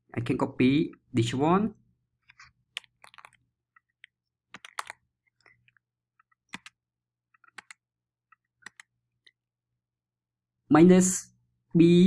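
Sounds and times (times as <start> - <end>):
keyboard and mouse clicks: 2.2 - 9.4.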